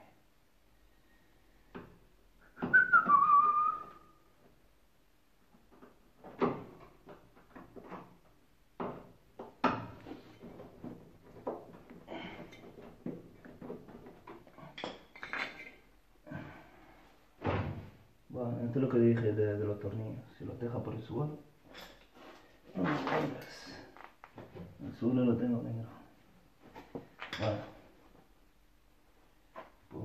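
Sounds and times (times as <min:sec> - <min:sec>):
short falling whistle: 0:02.6 - 0:04.2.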